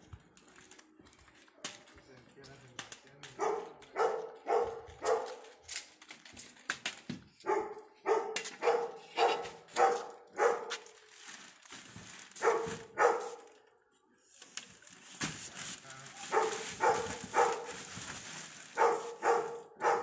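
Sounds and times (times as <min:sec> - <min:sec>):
dog barking: 0:03.3 - 0:05.5, 0:07.4 - 0:10.8, 0:12.4 - 0:13.5, 0:16.2 - 0:17.9, 0:18.8 - 0:20.0.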